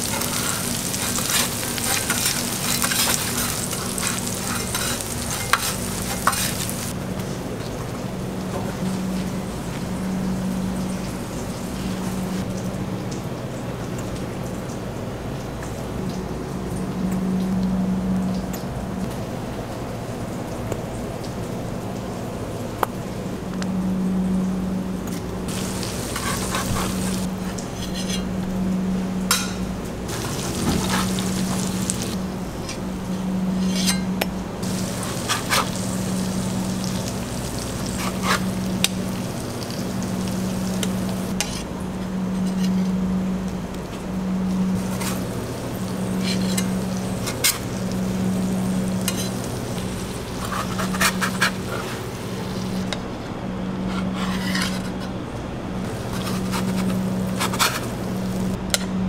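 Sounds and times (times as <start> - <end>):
metal tongs scraping griddle: 0.0 - 6.9, 25.5 - 28.4, 29.3 - 32.8, 33.5 - 38.9, 40.5 - 41.7, 42.3 - 42.9, 44.8 - 52.8, 53.8 - 55.1, 55.9 - 58.6
burger patties sizzling on griddle: 0.0 - 7.0, 25.5 - 28.2, 29.3 - 32.2, 33.5 - 41.6, 44.8 - 52.8, 55.9 - 58.6
low pulsing hum: 0.0 - 13.3, 15.8 - 59.0.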